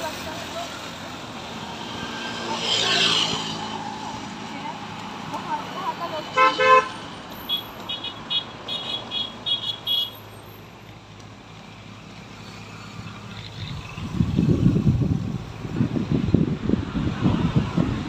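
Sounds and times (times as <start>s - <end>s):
roadside traffic: 0.0s - 18.0s
vehicle horn honk: 6.4s - 10.2s
gusty low rumble: 13.8s - 18.0s.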